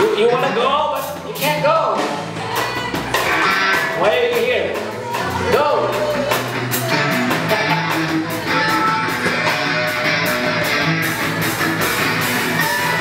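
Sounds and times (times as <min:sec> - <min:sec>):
drum kit: 0:00.0 - 0:13.0
electric guitars playing: 0:02.0 - 0:13.0.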